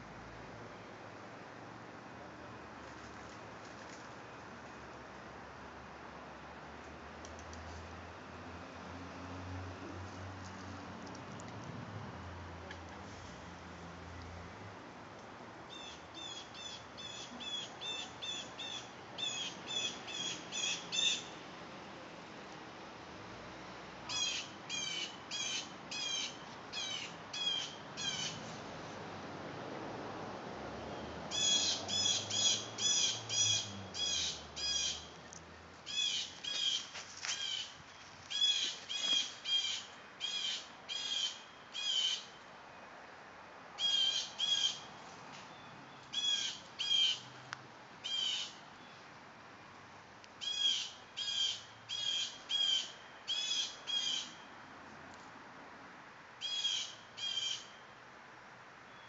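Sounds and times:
bird calling: 24.1 - 28.4, 35.9 - 42.3, 45.5 - 47.3, 48.0 - 49.0.

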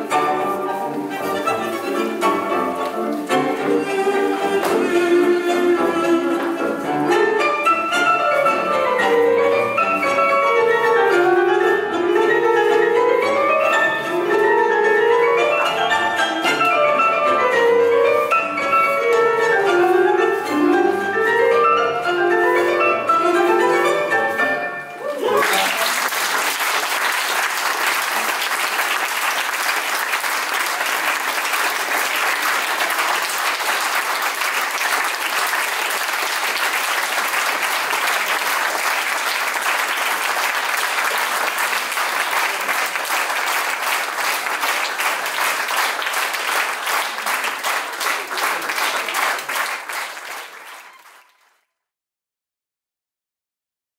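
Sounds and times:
audience clapping: 0.8 - 4.9, 25.1 - 51.6.

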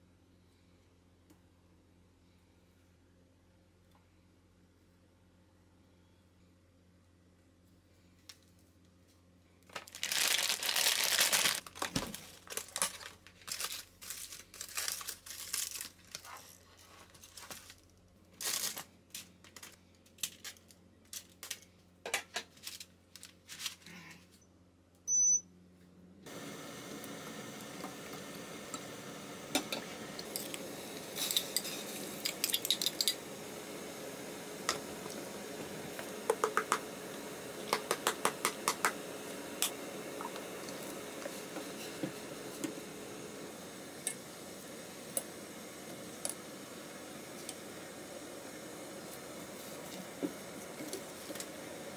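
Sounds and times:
foil and paper crinkling: 9.6 - 21.7, 22.5 - 23.9
short high beep: 25.1 - 25.5
stove hissing: 26.2 - 51.9.

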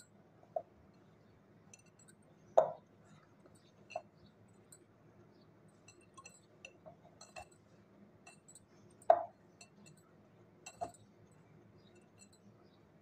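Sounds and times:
glass bowl clinking: 1.7 - 2.8, 3.6 - 4.1, 5.8 - 7.6, 8.3 - 10.0, 10.7 - 11.1, 11.9 - 12.5.

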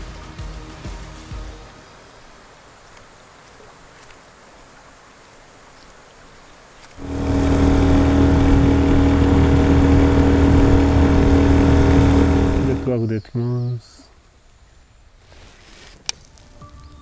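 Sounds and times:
faint outdoor ambience: 0.0 - 17.0
outboard motor running: 7.0 - 13.0.

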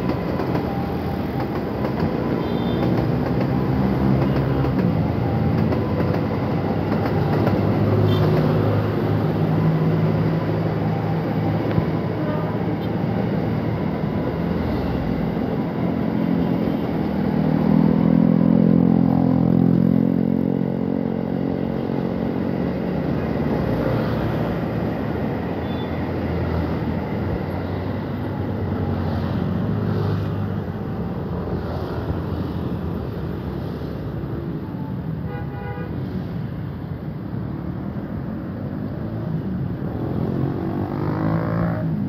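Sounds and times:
electric train passing: 0.0 - 19.9
road traffic: 0.0 - 42.0
motorcycle accelerating past: 40.3 - 42.0.

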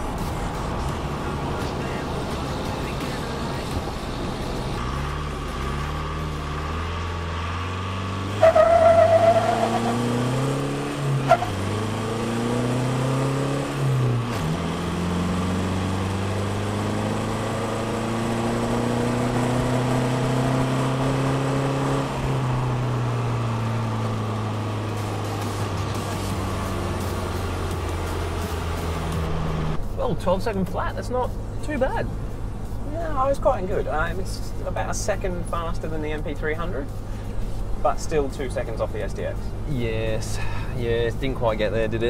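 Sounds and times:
diesel engine accelerating: 0.0 - 42.0
tyre squeal: 8.4 - 10.1.

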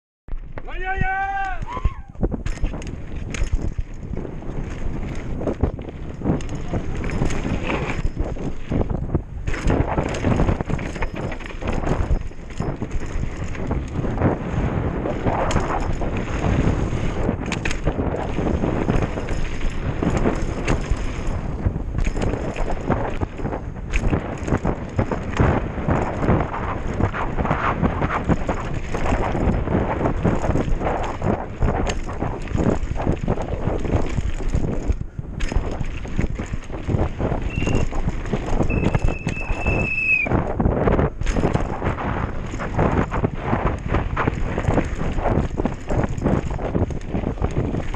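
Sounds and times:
bike rattling and knocking: 0.3 - 47.9
bike tyres on dirt: 0.3 - 47.9
wind buffeting microphone: 0.3 - 47.9
high steady squeal: 37.5 - 37.9, 38.6 - 40.3.

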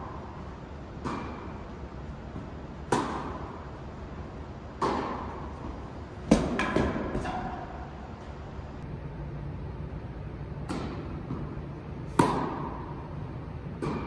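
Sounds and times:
tennis ball struck by rackets: 1.0 - 1.5, 2.8 - 3.6, 4.8 - 7.6, 10.6 - 11.5, 12.1 - 12.9, 13.8 - 14.0
ball bouncing: 4.8 - 7.5.

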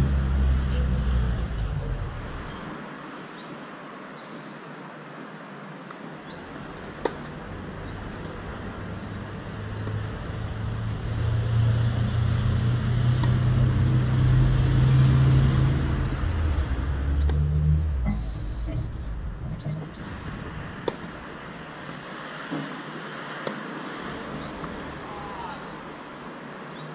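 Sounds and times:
vehicle engine droning: 0.0 - 2.8, 7.3 - 21.6
small birds chirping: 5.9 - 8.3, 9.4 - 10.3, 11.5 - 12.2, 13.6 - 21.0.

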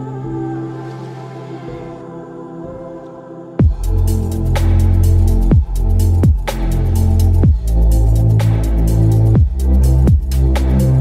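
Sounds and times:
electronic music with deep bass: 3.6 - 11.0.

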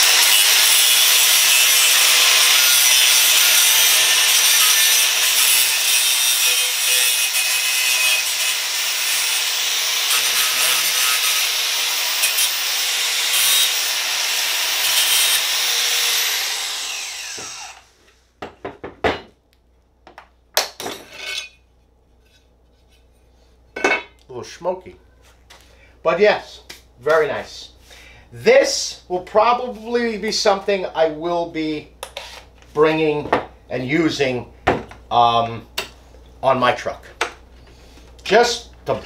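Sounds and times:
angle grinder cutting metal: 0.0 - 17.9.

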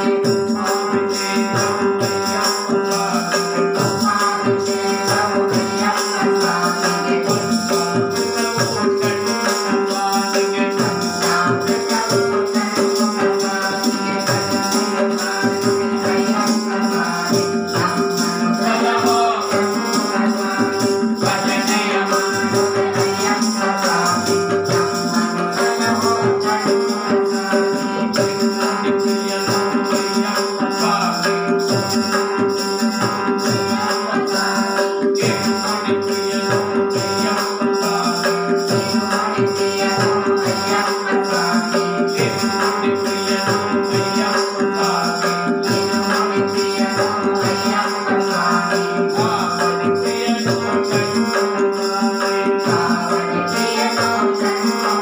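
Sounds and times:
hand-played barrel drum: 0.0 - 55.0
harmonium melody over drone: 0.0 - 55.0
metallic jingling percussion: 0.0 - 55.0.

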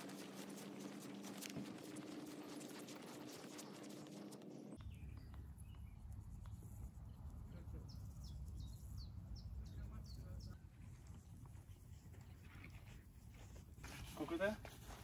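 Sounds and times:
footsteps swishing through grass: 0.0 - 4.8
low steady hum: 0.0 - 13.8
faint bird chirps: 0.6 - 11.3.

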